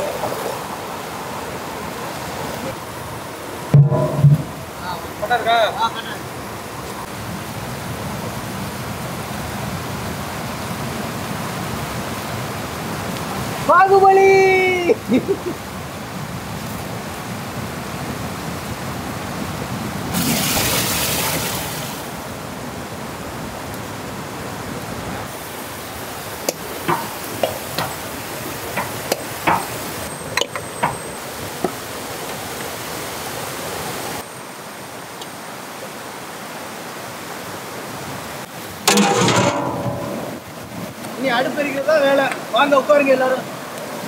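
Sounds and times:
river rapids rushing: 4.4s - 44.0s
glass jars clinking in pot: 26.9s - 28.0s.

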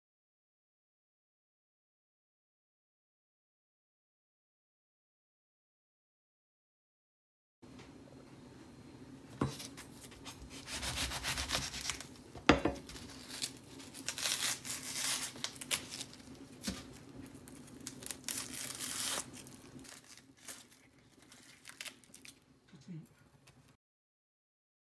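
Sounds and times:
onion skin rustling and tearing: 9.6s - 22.5s.

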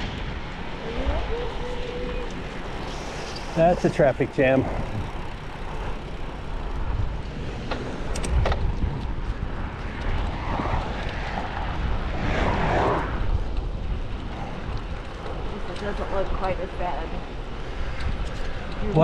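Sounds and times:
wind rushing over microphone: 0.0s - 19.0s.

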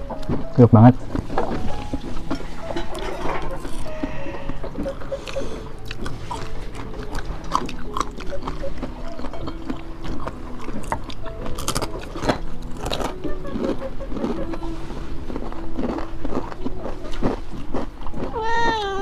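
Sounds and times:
people chewing: 0.0s - 19.0s
crunching of crisp food: 0.1s - 19.0s.

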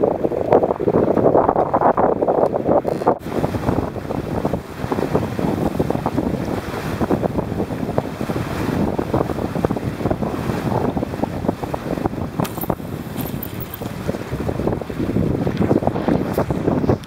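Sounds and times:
wind buffeting microphone: 0.0s - 17.0s
water spray splashing: 3.2s - 15.6s
water rushing past hull: 3.2s - 17.0s.

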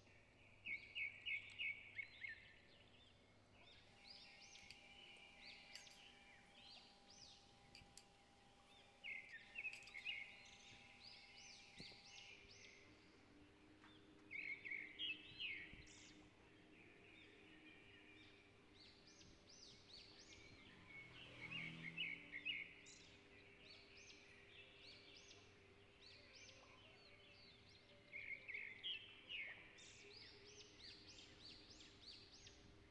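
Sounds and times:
bird chirping: 0.0s - 32.9s
faint low hum: 0.0s - 32.9s.

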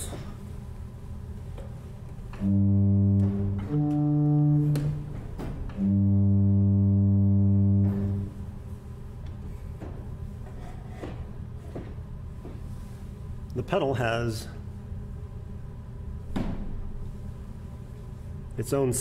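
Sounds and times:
pipe organ low held notes: 2.4s - 8.4s.

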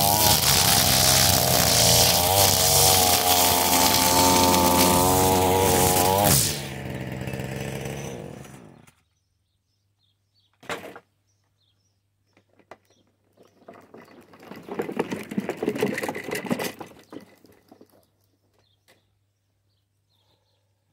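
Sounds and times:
footsteps on grass: 0.0s - 6.3s
push mower rattling over grass: 0.0s - 8.9s, 13.3s - 18.1s
small petrol engine stopping: 0.0s - 9.0s.

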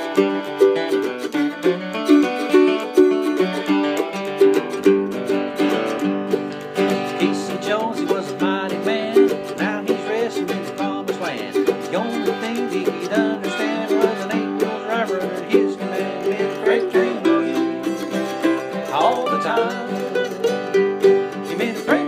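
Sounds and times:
acoustic guitar boogie rhythm: 0.0s - 22.0s
man singing: 7.1s - 20.5s, 21.2s - 22.0s.

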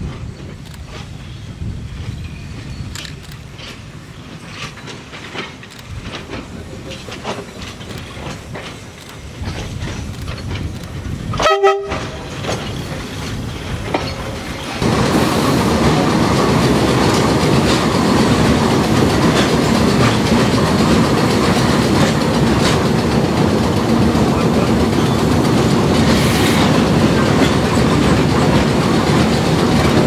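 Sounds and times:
rumble and clatter of moving railcar: 0.0s - 30.0s
train horn blast: 11.4s - 12.2s.

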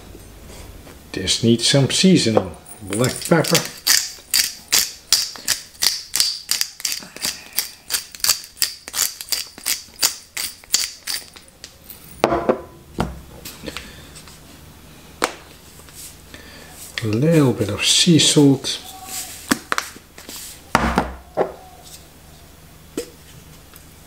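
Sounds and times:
pepper mill grinding: 2.8s - 11.8s.

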